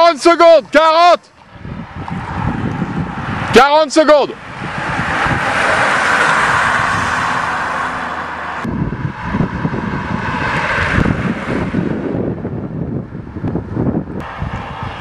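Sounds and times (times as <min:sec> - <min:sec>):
wind buffeting microphone: 0:00.0 - 0:15.0
bicycles rushing past: 0:04.4 - 0:15.0.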